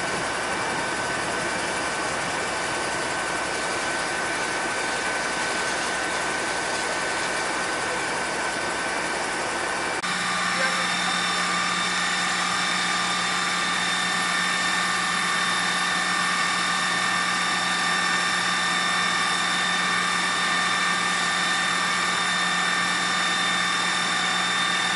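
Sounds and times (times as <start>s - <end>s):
fire truck engine hum: 0.0s - 24.9s
high whining tones: 10.0s - 24.9s.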